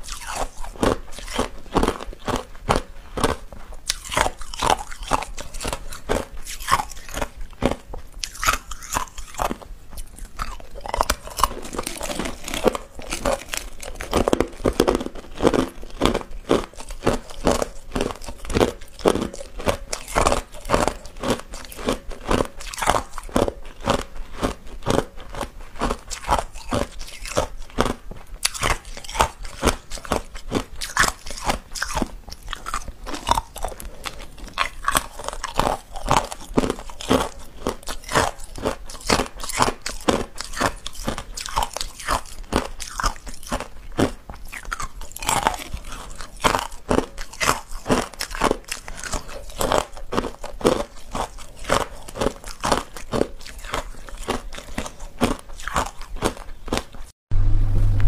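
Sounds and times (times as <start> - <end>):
ice crunching while chewed: 0.0 - 57.1.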